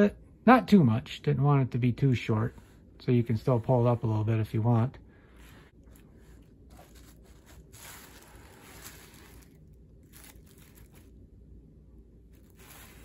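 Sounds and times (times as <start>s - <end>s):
soft brushing and rustling: 5.4s - 11.2s
hands rustling latex mask: 5.4s - 11.5s, 12.1s - 13.0s.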